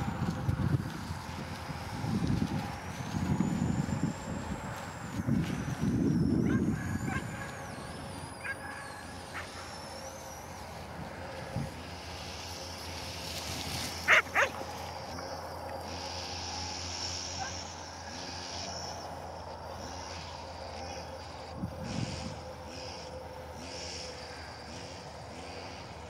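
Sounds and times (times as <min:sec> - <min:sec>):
faint low droning hum: 0:00.0 - 0:26.0
dog barking: 0:14.1 - 0:14.6.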